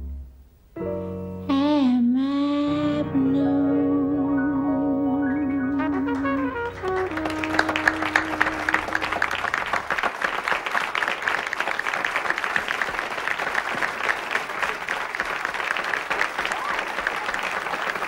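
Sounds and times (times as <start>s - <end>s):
slow jazz band playing: 0.0s - 9.8s
audience applause: 6.1s - 18.0s.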